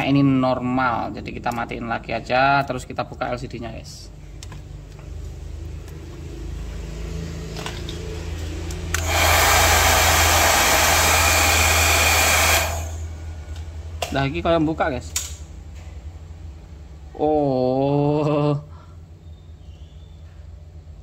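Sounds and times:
low electric hum: 0.0 - 21.0
hot-air blower rushing: 8.9 - 13.3.

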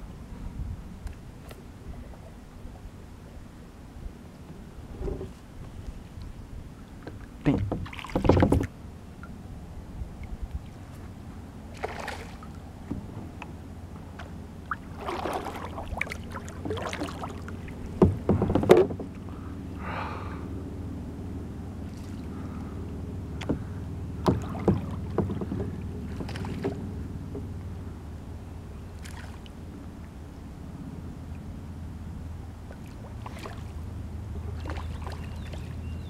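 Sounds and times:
wind: 0.0 - 36.0
knocks on kayak hull: 7.5 - 8.7, 18.0 - 19.2, 23.4 - 26.8
water wash: 14.6 - 18.7.

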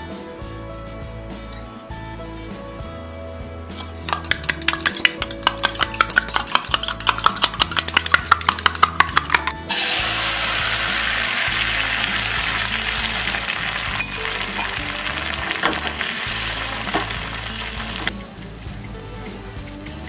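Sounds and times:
background music: 0.0 - 20.0
egg sizzling in frying pan: 4.1 - 18.1.

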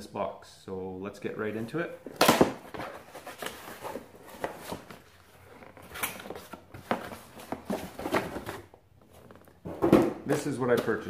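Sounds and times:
cardboard box rustling and scraping: 2.6 - 9.8.

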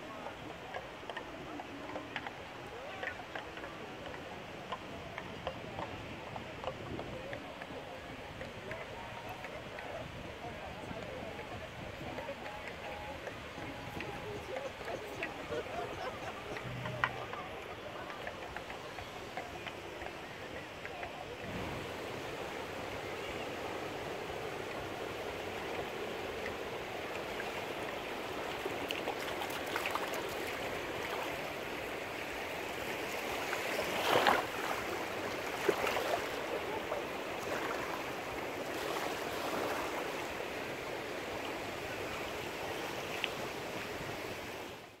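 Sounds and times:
waves on a beach: 0.0 - 45.0
faint clicks: 0.7 - 9.9, 12.2 - 21.5.

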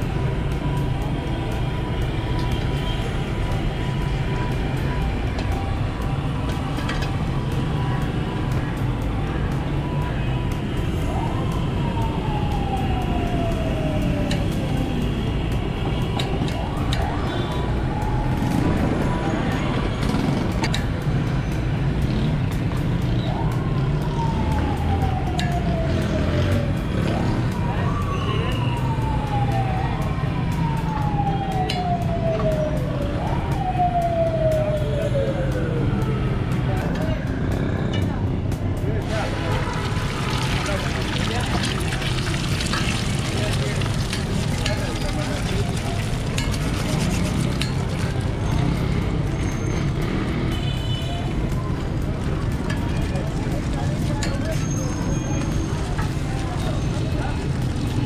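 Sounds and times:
low street rumble: 0.0 - 58.0
passing traffic: 0.0 - 58.0
siren wailing: 9.6 - 21.2, 23.1 - 36.5, 39.0 - 51.8.

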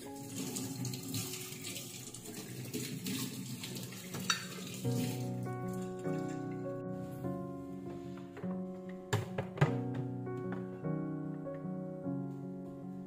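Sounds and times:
tap water running into sink: 0.0 - 6.4
background music: 0.0 - 13.0.

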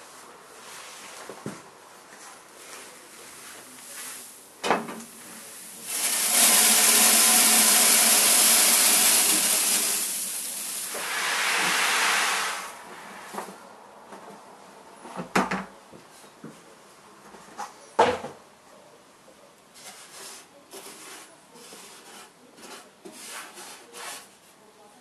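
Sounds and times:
grain pouring into metal box: 5.0 - 12.8.

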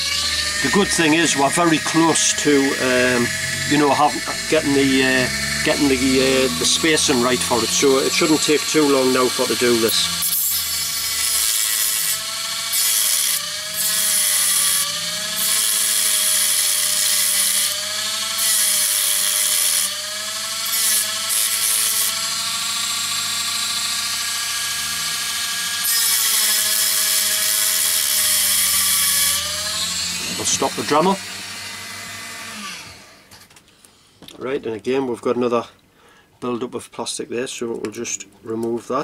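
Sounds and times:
grinding plastic hiss: 0.0 - 10.3
rotary tool motor whine: 0.0 - 33.4.

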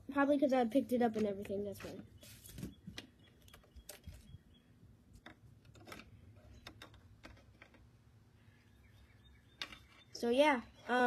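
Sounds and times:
plastic figures clicking and tapping: 0.9 - 2.1, 5.2 - 7.9.

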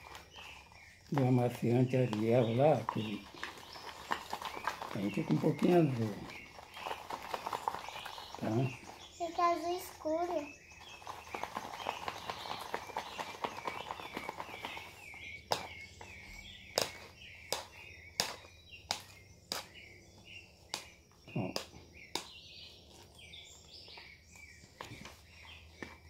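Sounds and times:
birds chirping: 0.0 - 26.0
stick clacking against plastic cup: 16.8 - 19.7.

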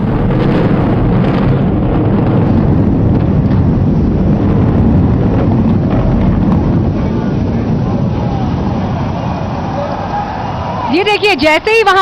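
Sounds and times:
buildings collapsing rumble: 0.0 - 12.0.

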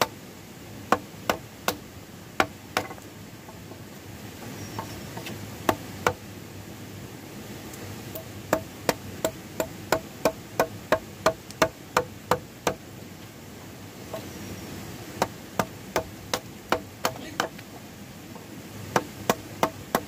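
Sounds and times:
hand tool striking wood: 0.9 - 1.8, 2.4 - 3.1, 8.2 - 12.8, 15.2 - 17.6, 18.9 - 20.0.

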